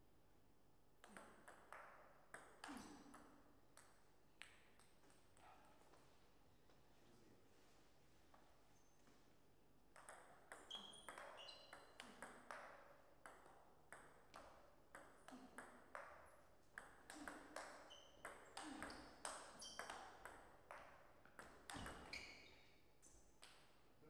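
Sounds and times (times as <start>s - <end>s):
table tennis ball hits: 1.0s - 4.9s, 9.9s - 22.2s.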